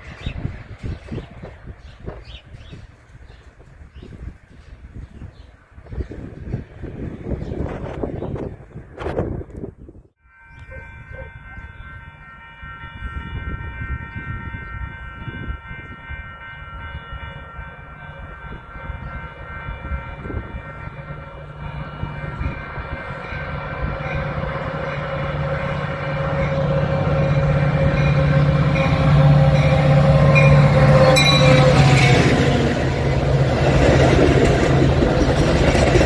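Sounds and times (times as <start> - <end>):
crossing warning bells ringing: 10.2 - 36.0
diesel locomotive engine drone: 10.5 - 36.0.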